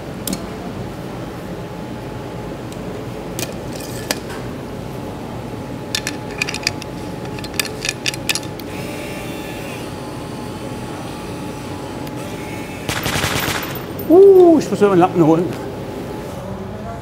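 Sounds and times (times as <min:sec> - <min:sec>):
workshop hum: 0:00.0 - 0:17.0.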